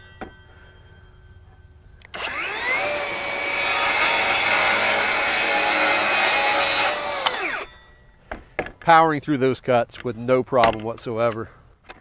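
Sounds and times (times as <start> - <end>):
circular saw cutting wood: 2.2 - 7.7.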